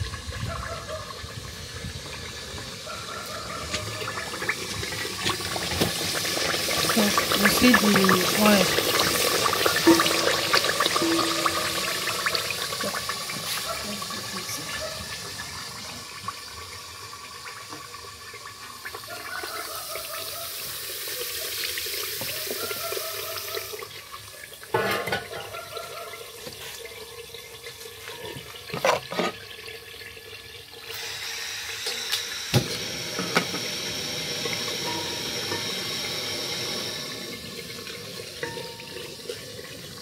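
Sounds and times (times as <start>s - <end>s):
pot knocking on burner: 9.8s - 12.5s.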